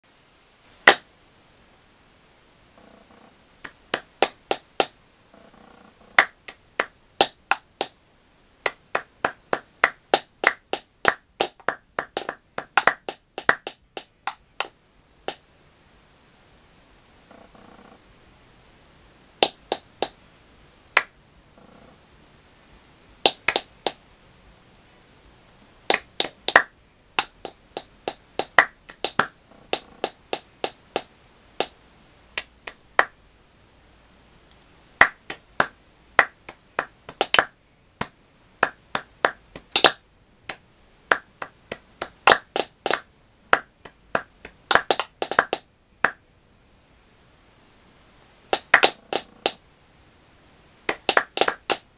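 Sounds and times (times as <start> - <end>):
hand claps: 3.6 - 5.0, 6.2 - 8.0, 8.6 - 14.7, 19.4 - 20.2, 23.2 - 24.0, 25.9 - 31.8, 32.4 - 33.2, 35.0 - 46.2, 48.5 - 49.6, 50.9 - 51.9.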